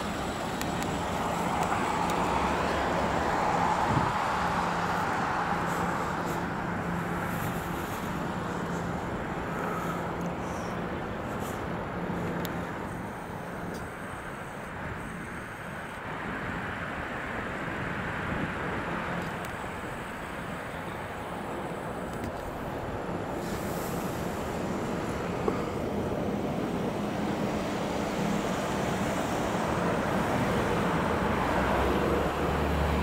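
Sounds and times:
wind rumbling on microphone: 0.0 - 12.8, 16.1 - 26.9
road traffic noise: 0.0 - 33.0.

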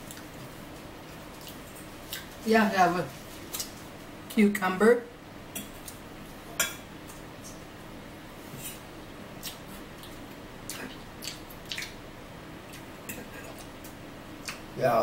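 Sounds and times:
chewing cucumber: 9.4 - 12.0
wet mouth sounds: 9.4 - 12.0.

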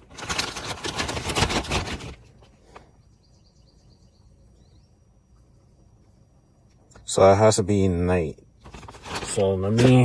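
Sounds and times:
plastic bag crinkling: 0.0 - 2.4, 8.6 - 10.0
faint bird chirps: 2.5 - 7.2.

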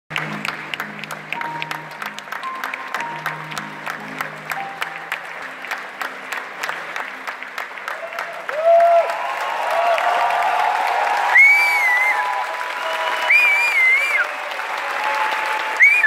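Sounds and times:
film music with low notes: 0.1 - 7.8
audience applauding: 0.1 - 16.0.

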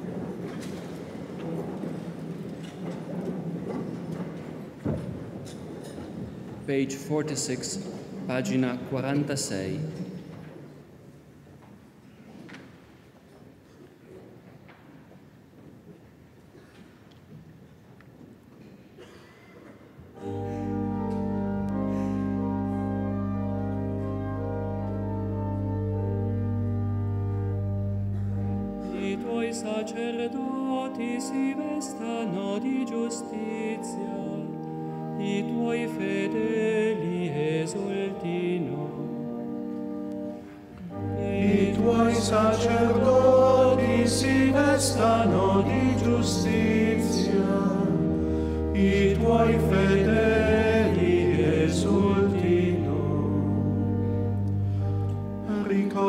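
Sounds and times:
organ playing chords: 20.2 - 56.0
choir singing a hymn: 27.9 - 39.7, 40.8 - 56.0.

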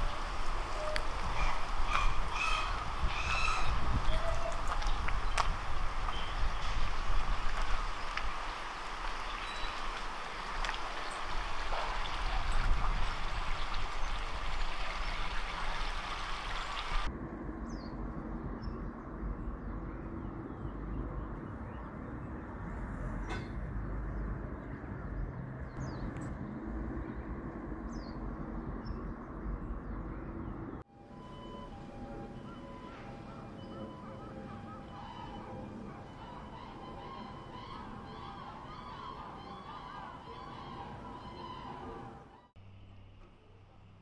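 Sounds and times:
rushing noise with low rumble: 0.0 - 30.9.

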